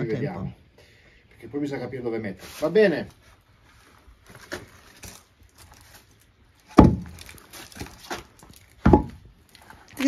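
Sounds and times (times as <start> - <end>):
firewood knocking together: 6.7 - 9.4.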